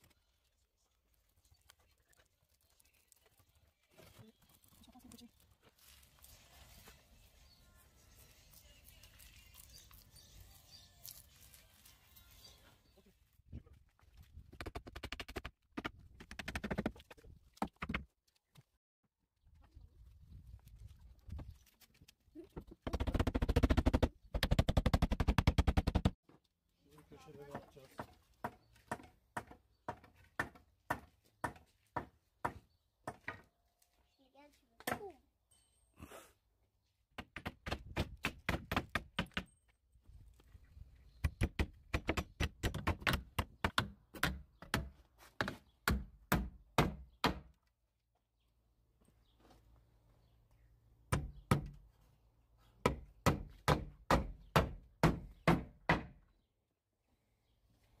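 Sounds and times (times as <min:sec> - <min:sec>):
hammer striking wood: 0:28.0 - 0:33.4, 0:41.3 - 0:47.5, 0:51.1 - 0:51.8, 0:52.8 - 0:56.2.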